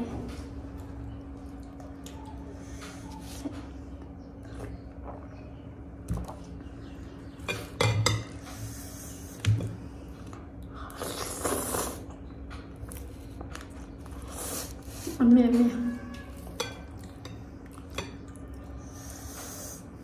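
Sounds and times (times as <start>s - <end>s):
faint steady hum: 0.0s - 20.0s
noodles being slurped: 10.9s - 12.1s.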